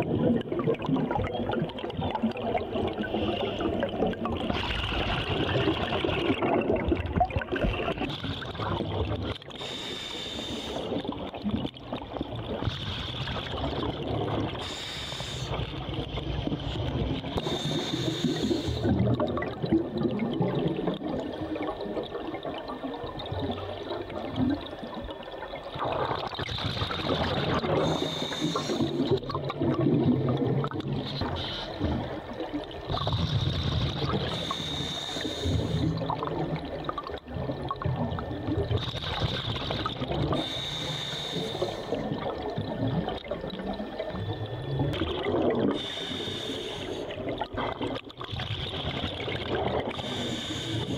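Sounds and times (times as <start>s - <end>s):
bubbles gurgling underwater: 0.0s - 9.8s, 10.6s - 50.9s
regulator hiss: 9.6s - 11.0s, 14.6s - 15.6s, 17.4s - 18.9s, 27.8s - 29.0s, 34.2s - 36.0s, 40.4s - 42.0s, 45.8s - 47.2s, 50.0s - 50.9s.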